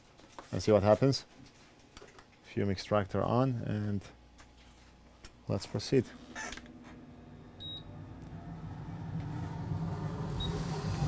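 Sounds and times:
short electronic beep: 0:07.6 - 0:07.9.

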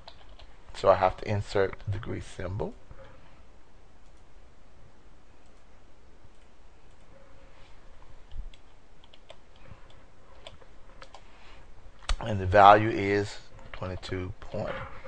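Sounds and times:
room hiss: 0:00.0 - 0:15.0
computer mouse clicks: 0:04.0 - 0:04.3, 0:05.4 - 0:05.7, 0:06.3 - 0:07.1, 0:08.2 - 0:11.2.

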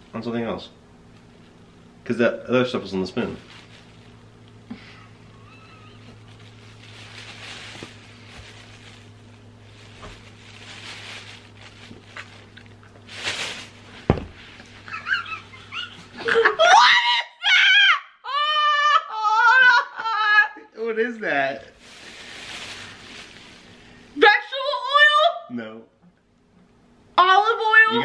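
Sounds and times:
high-pitched shrieking laughter: 0:05.4 - 0:06.1, 0:15.0 - 0:20.7.

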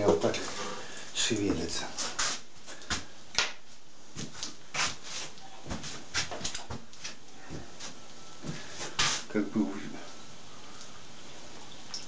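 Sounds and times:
fritters sizzling in oil: 0:00.0 - 0:12.0
hot oil popping and spitting: 0:10.1 - 0:12.0.

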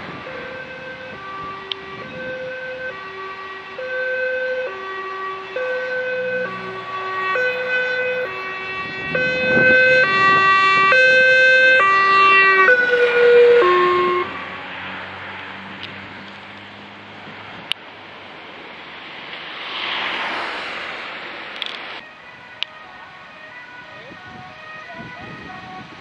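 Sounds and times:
two-tone police siren: 0:00.0 - 0:15.4, 0:22.0 - 0:26.0.

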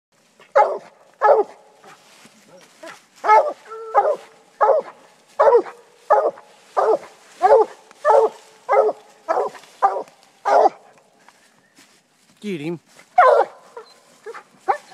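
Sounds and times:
dog barking loudly: 0:00.5 - 0:02.0, 0:02.8 - 0:10.9, 0:13.2 - 0:14.9.

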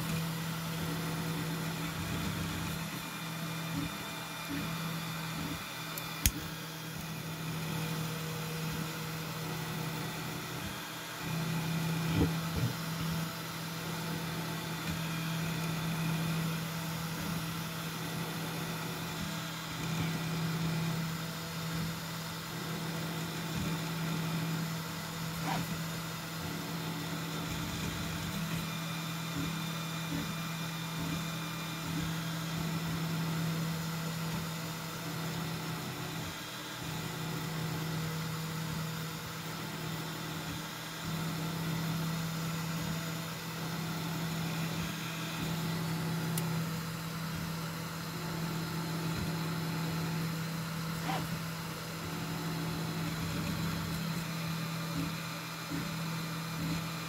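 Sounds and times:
stepper motors whirring: 0:00.0 - 0:34.5, 0:35.4 - 0:57.0
fan hum: 0:42.0 - 0:57.0.

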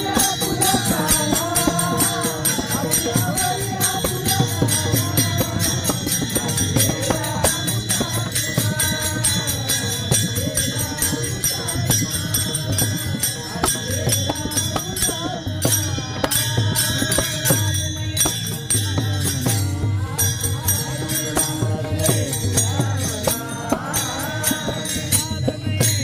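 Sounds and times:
hand cymbals struck: 0:00.0 - 0:26.0
two-headed drum: 0:00.0 - 0:26.0
voices singing: 0:00.0 - 0:26.0.

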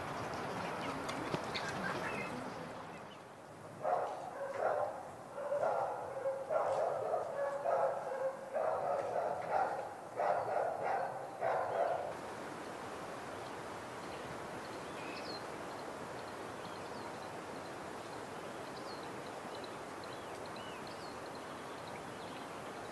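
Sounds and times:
dog barking: 0:03.8 - 0:12.2.

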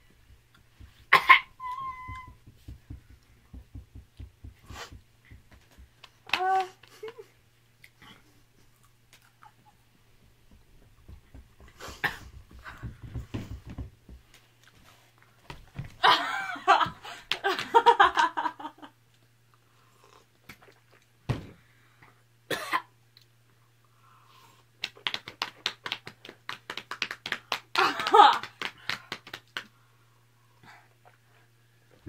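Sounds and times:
women coughing: 0:01.1 - 0:01.5, 0:22.5 - 0:22.9
women laughing: 0:16.0 - 0:18.9, 0:27.8 - 0:28.4.

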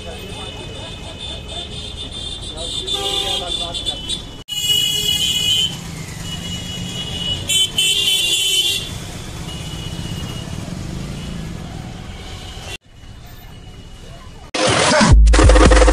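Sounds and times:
vehicle horns honking: 0:00.0 - 0:11.4
traffic engines rumbling: 0:00.0 - 0:14.6.

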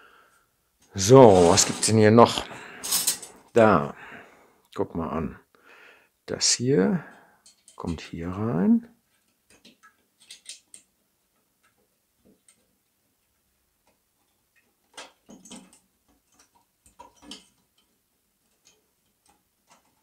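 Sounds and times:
small metal parts clicking: 0:07.4 - 0:07.9, 0:09.1 - 0:10.9, 0:14.6 - 0:20.0.

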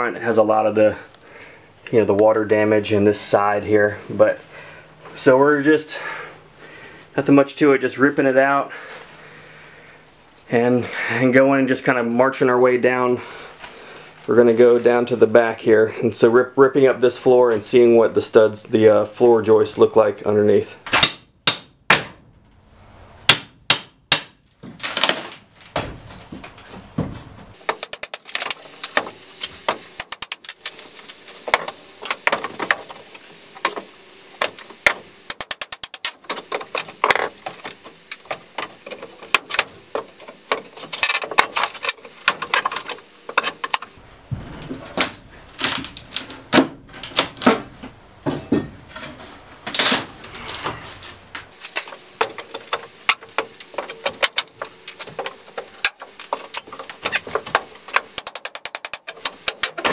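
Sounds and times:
plywood cracking: 0:23.3 - 0:26.7, 0:27.7 - 0:44.0, 0:44.6 - 0:47.7
wood scraping: 0:24.6 - 0:59.9.

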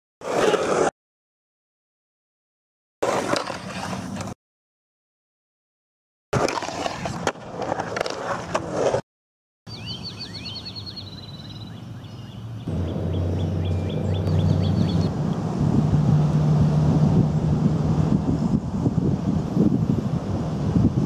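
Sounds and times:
skateboard trucks scraping and clacking: 0:00.2 - 0:00.9, 0:03.0 - 0:04.4, 0:06.4 - 0:09.0
skateboard wheels rolling on concrete: 0:00.2 - 0:00.9, 0:03.0 - 0:04.4, 0:06.4 - 0:09.0, 0:12.6 - 0:21.0
bird chirping in high trills: 0:09.7 - 0:15.1.

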